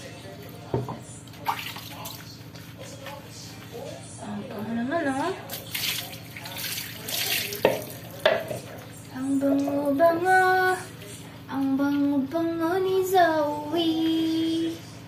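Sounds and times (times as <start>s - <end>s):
splashy washing noise: 1.4s - 2.3s, 5.5s - 8.1s.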